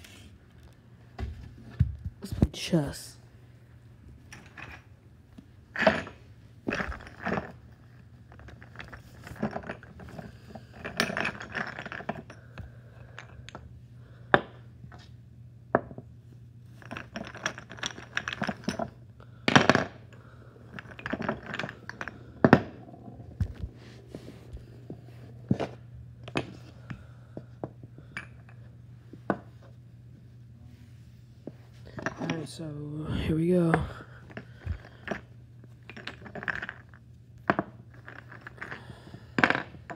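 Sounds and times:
chess pieces clattering on board: 16.8s - 18.9s, 20.8s - 23.8s, 35.9s - 39.9s.

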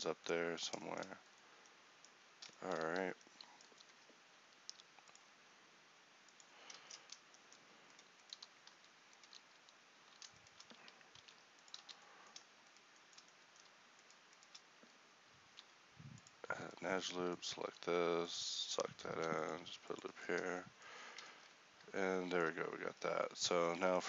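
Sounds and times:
low steady hiss: 0.0s - 24.0s
keyboard keys clicking: 7.9s - 12.5s.

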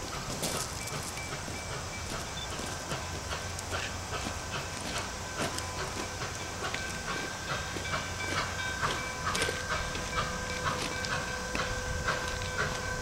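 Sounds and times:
thin high steady tone: 0.0s - 3.7s
steady hiss of steam: 0.0s - 13.0s
steam locomotive exhaust chuffing: 0.0s - 13.0s.

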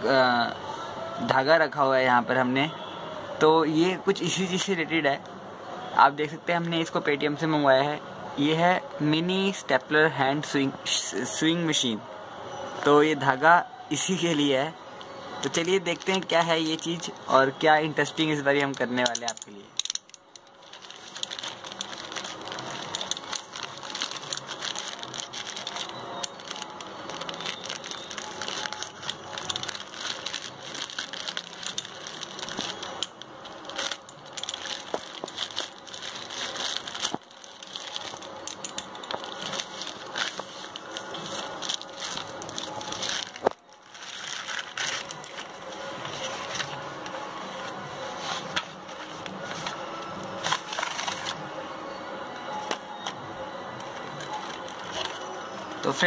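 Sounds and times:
plastic mailer crinkling: 15.4s - 17.1s, 18.7s - 46.8s
cardboard packaging handled: 20.6s - 46.8s.

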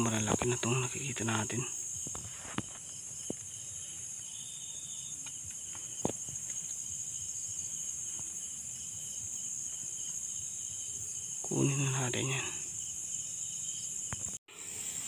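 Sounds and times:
crickets trilling: 0.0s - 15.0s.

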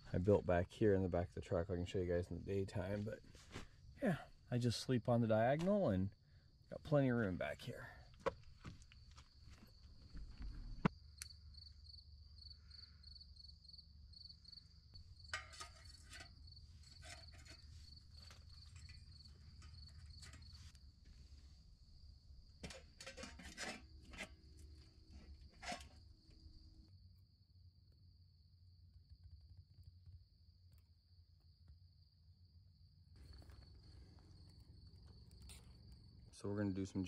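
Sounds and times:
crickets chirping: 0.0s - 37.0s
metal pot set on stove: 15.1s - 20.8s, 22.6s - 26.0s
clicks from handling camp stove: 15.2s - 17.6s, 18.2s - 20.6s.

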